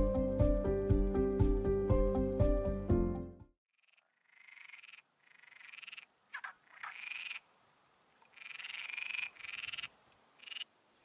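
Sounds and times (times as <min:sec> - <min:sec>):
frogs croaking: 0:03.7 - 0:07.5, 0:08.2 - 0:10.8.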